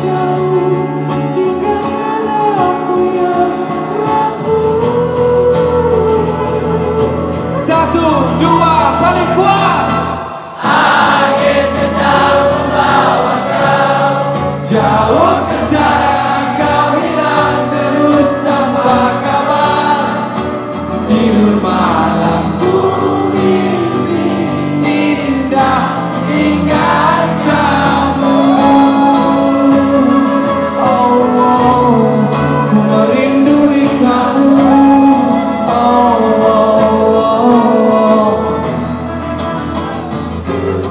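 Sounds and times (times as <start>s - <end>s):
crowd singing along: 0.0s - 7.6s, 8.9s - 40.9s
live band playing a ballad: 0.0s - 40.9s.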